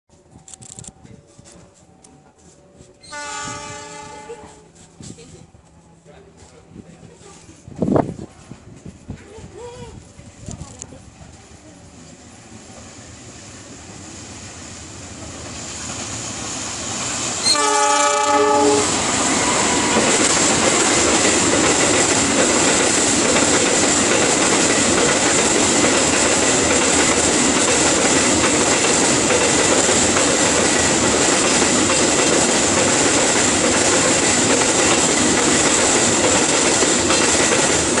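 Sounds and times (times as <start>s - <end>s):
train wheels rumbling on rails: 0.1s - 38.0s
locomotive horn: 3.0s - 4.8s, 17.4s - 20.1s.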